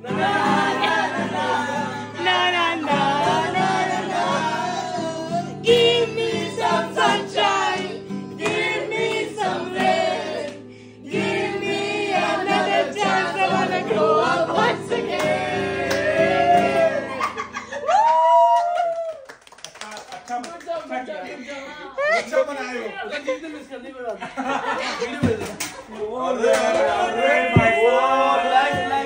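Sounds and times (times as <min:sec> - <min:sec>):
acoustic guitar strumming: 0:00.0 - 0:17.7, 0:26.6 - 0:29.0
voices singing along: 0:00.0 - 0:17.8, 0:26.1 - 0:29.0.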